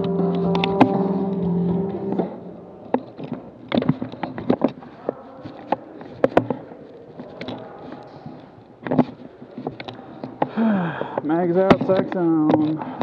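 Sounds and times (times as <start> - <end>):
low buzzing background: 0.0 - 3.2.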